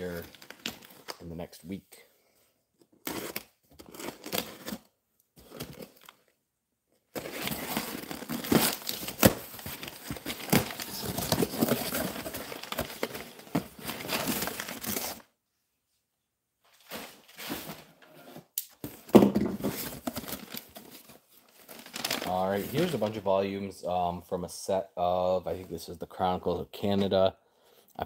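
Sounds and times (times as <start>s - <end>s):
paper crinkling: 7.2s - 15.2s, 19.6s - 23.2s.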